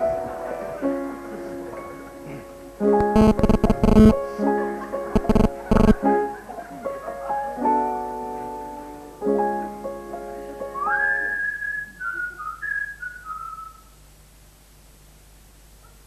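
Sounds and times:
keyboard chords: 0.0s - 10.8s
sliding whistle notes: 10.8s - 13.9s.

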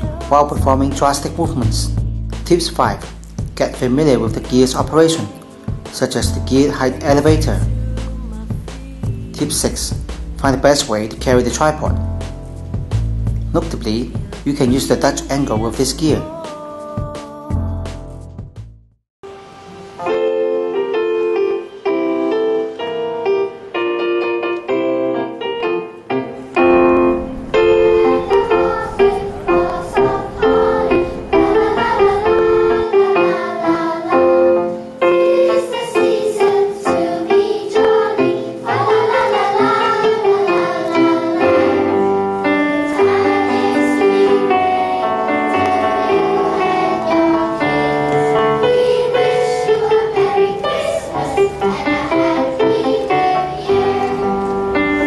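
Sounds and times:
electronic keyboard: 0.0s - 16.4s, 19.3s - 55.0s
children's choir singing: 3.6s - 12.0s, 13.5s - 18.0s, 26.2s - 55.0s.

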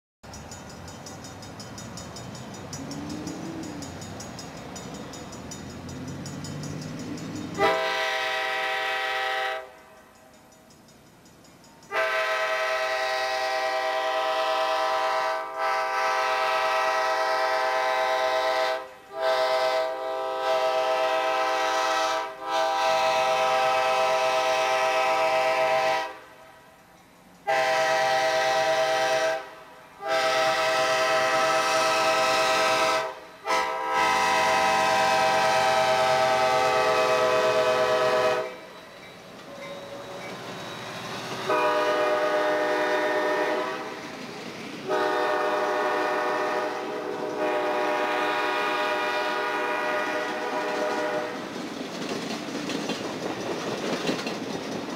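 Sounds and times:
train rumbling: 0.2s - 54.9s
train air horn blasts: 7.6s - 10.0s, 11.9s - 26.4s, 27.4s - 38.8s, 41.4s - 44.1s, 44.8s - 51.5s.

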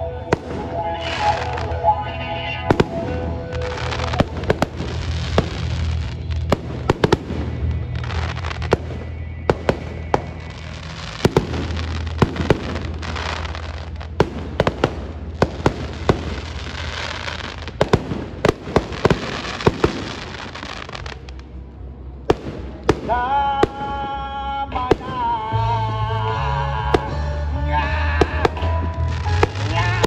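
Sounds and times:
music with steady bass: 0.0s - 17.8s, 22.9s - 30.0s
fireworks bursting: 0.0s - 21.6s, 22.2s - 25.8s, 26.8s - 30.0s
hissing crackle: 2.7s - 21.5s.

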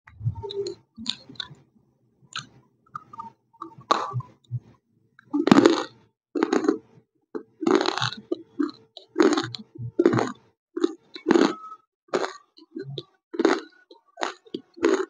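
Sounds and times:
crunchy food being chewed: 2.3s - 4.3s, 5.2s - 15.0s.

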